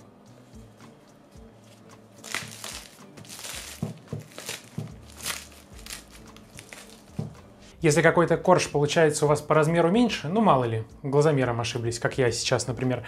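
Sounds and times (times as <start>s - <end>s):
quiet background music: 0.0s - 13.0s
pastry layers crackling: 2.2s - 7.3s.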